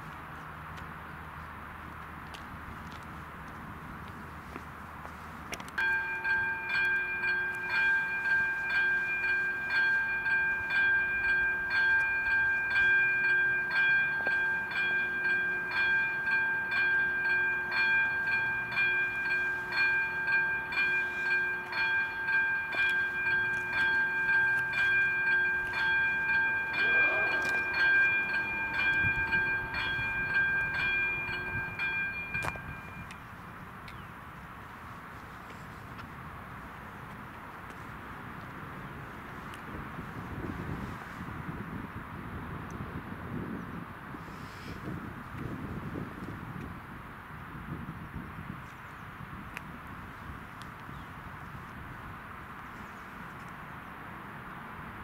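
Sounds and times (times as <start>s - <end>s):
level crossing warning bell: 5.6s - 33.7s.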